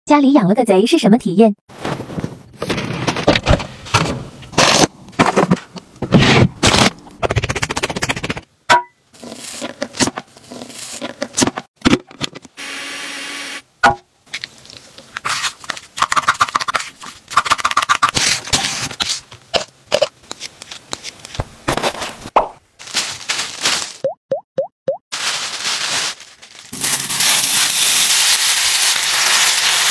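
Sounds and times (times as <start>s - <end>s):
food handling clicks and rustles: 14.3s - 22.2s, 22.8s - 24.0s.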